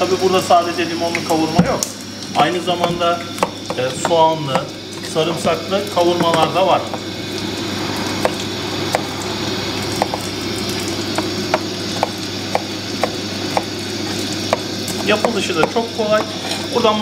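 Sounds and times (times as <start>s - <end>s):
background hiss and hum: 0.0s - 17.0s
knife tapping cutting board: 2.8s - 4.7s, 11.2s - 13.7s.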